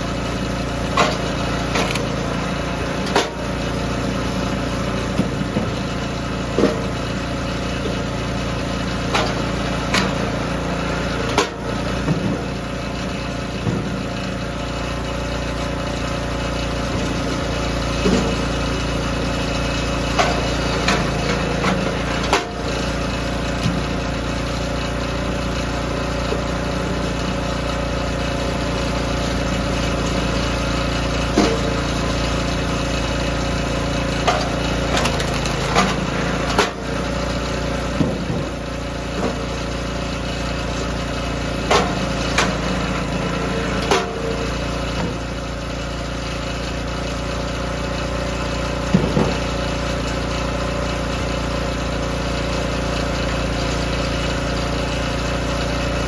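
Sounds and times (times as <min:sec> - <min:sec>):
small gas engine running: 0:00.0 - 0:56.0
wood splitting knocks and cracks: 0:01.0 - 0:02.1, 0:34.2 - 0:36.8.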